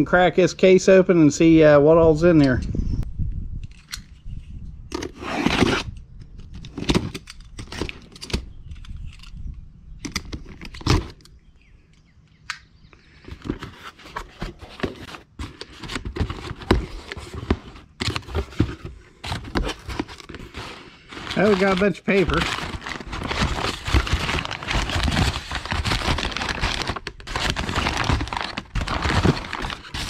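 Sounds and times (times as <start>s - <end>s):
cardboard tearing: 5.0s - 5.9s, 13.5s - 30.0s
cardboard rustling: 13.2s - 30.0s
packing paper rustling: 13.2s - 30.0s.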